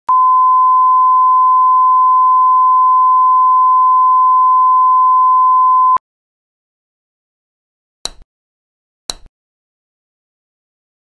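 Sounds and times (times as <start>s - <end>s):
steady high test tone beep: 0.1s - 6.0s.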